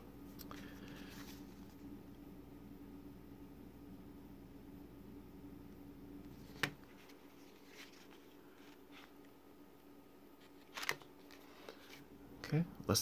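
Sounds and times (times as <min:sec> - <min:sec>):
pages rustling: 0:06.3 - 0:09.2, 0:10.4 - 0:12.0.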